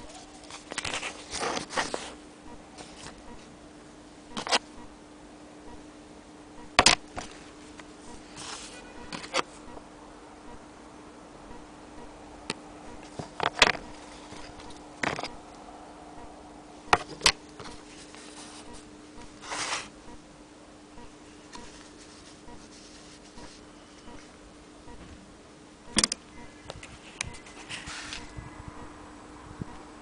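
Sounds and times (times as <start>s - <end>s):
steady low hum: 0.0s - 30.0s
cloth rustle: 7.2s - 9.3s, 21.7s - 23.7s
handling clicks and taps: 25.9s - 27.3s.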